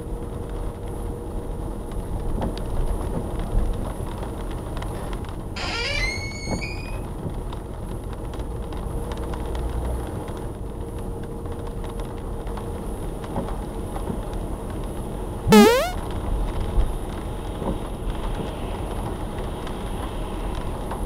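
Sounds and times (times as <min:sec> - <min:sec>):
short rising squeal: 0:05.6 - 0:07.0, 0:15.5 - 0:16.0.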